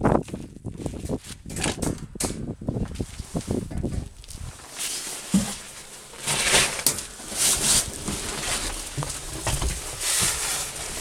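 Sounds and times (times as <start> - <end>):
clothes rustling and shuffling: 2.7 - 11.0.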